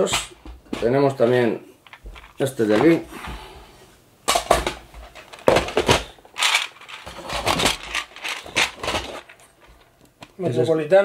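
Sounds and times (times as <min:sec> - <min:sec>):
plastic pieces rattling in metal tin: 0:04.3 - 0:09.9.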